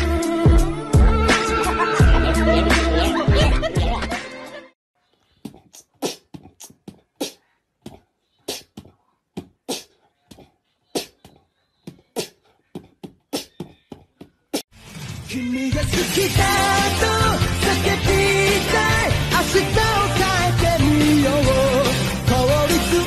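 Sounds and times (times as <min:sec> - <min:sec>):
music: 0:00.0 - 0:04.8, 0:14.8 - 0:23.0.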